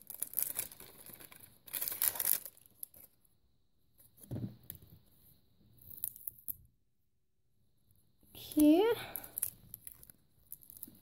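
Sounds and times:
plastic wrap crinkling and tearing: 0.0 - 3.2.

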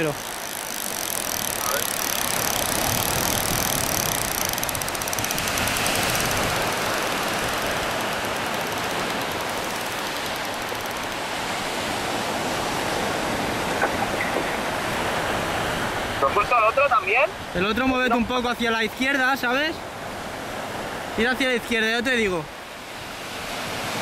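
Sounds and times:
surf washing on beach: 0.0 - 24.0
wind on microphone: 2.2 - 8.5.

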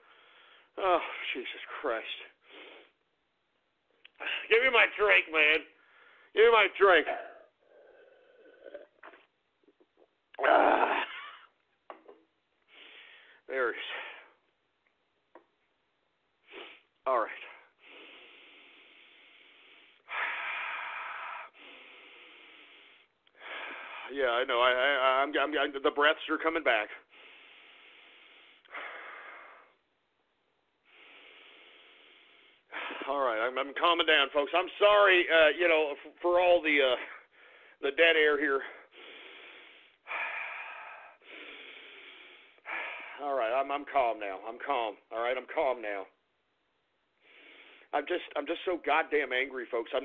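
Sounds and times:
man breathing hard and wheezing: 7.0 - 9.2, 12.7 - 14.4, 17.5 - 24.1, 27.0 - 29.9, 30.8 - 33.1, 37.1 - 37.8, 38.6 - 43.2, 47.2 - 47.9
loud rasping breath: 7.1 - 9.1, 17.6 - 24.1, 27.0 - 29.8, 30.8 - 33.1, 38.6 - 43.2.

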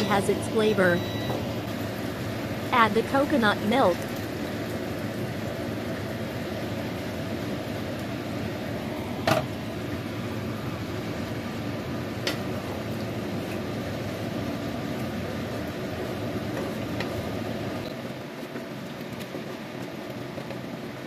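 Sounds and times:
kitchen hum: 0.0 - 14.5.

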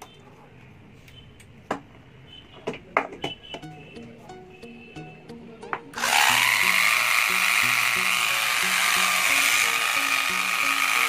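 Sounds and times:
background music: 3.6 - 11.0
angle grinder motor whining: 6.0 - 11.0.

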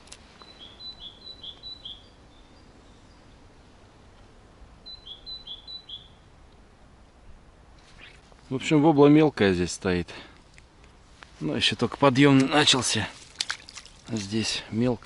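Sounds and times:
songbird singing: 0.0 - 9.4.

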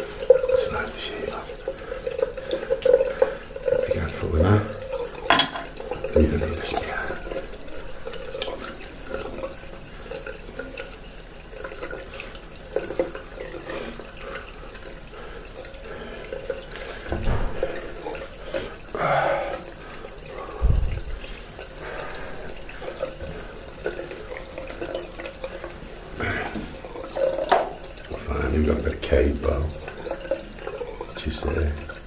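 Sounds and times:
dull thumps: 20.6 - 21.1.

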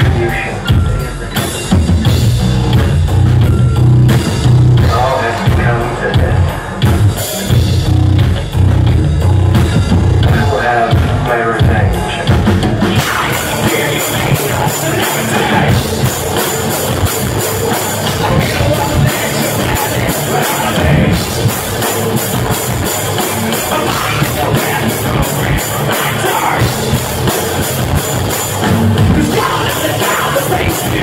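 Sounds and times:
live heavy rock band: 0.0 - 31.0
person singing: 4.8 - 6.9, 10.2 - 16.5, 17.5 - 21.9, 22.8 - 27.4, 29.0 - 31.0.

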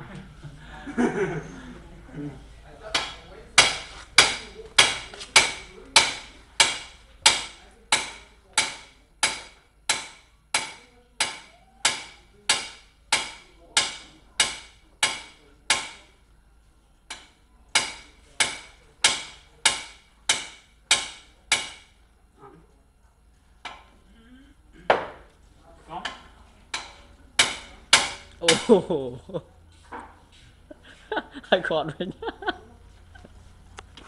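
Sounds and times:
hammer striking metal rod: 2.9 - 16.1, 17.1 - 22.0, 26.7 - 28.8.

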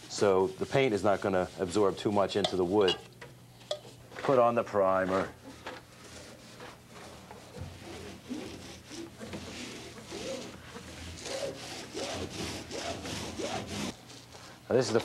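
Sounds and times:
paint roller swishing on wood: 0.0 - 2.9, 4.3 - 14.0.

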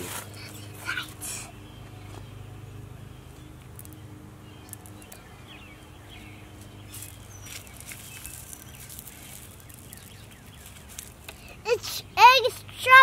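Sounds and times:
bird chirps: 0.3 - 11.7
gravel pebbles clicking: 3.6 - 4.0, 4.6 - 5.3, 6.6 - 11.6.

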